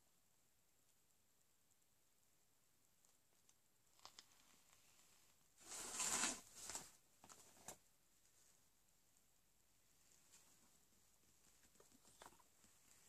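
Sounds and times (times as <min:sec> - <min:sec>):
rustling and rummaging: 0:03.9 - 0:08.6, 0:10.0 - 0:13.0.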